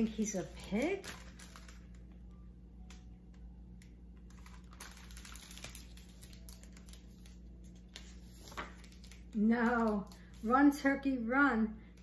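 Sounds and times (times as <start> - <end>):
book clicks and paper rustles: 0.0 - 2.2, 3.8 - 10.5
faint steady hum: 0.0 - 12.0.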